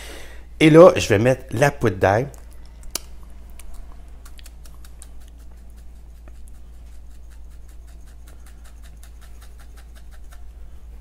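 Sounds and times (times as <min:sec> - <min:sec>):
spice jar shaking ticks: 0:03.6 - 0:10.5.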